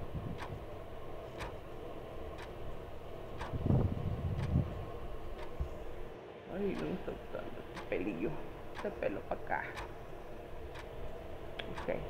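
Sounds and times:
timer ticking: 0.0s - 1.6s, 2.2s - 4.6s, 5.4s - 5.6s, 6.6s - 10.0s, 10.6s - 11.0s, 11.6s - 12.0s
electric fan rushing: 0.0s - 12.0s
dull low thumps: 3.4s - 6.0s.

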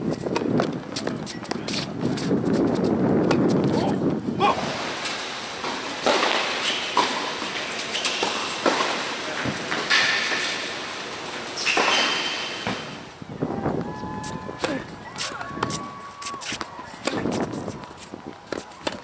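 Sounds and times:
shoes squeaking on court: 0.0s - 4.1s, 4.9s - 13.1s, 13.9s - 19.0s
tennis ball bouncing on hard court: 5.6s - 10.8s, 14.6s - 19.0s
tennis ball struck by racquets: 5.6s - 13.0s, 14.6s - 19.0s.

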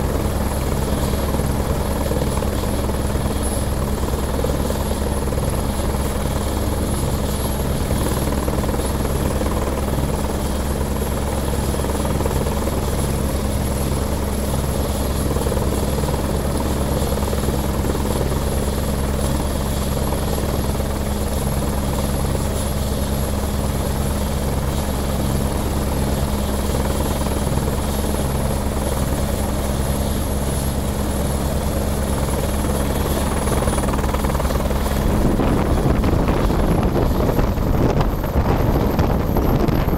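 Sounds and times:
helicopter rotor hum and beat: 0.0s - 39.9s
high turbine whine: 26.8s - 39.9s.

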